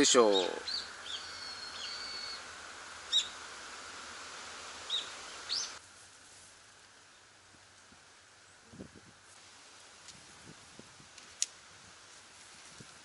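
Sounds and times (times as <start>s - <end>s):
background hiss: 0.0s - 13.0s
high bird chirps: 0.2s - 2.4s, 3.1s - 3.4s, 4.9s - 5.8s
bird whistle: 0.4s - 2.4s, 3.1s - 3.4s, 4.9s - 5.8s.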